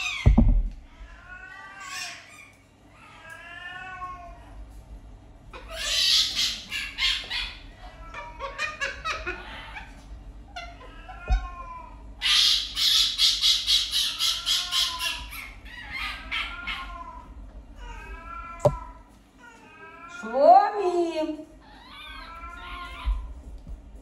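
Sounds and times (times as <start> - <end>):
fox whining calls: 12.2 - 17.2.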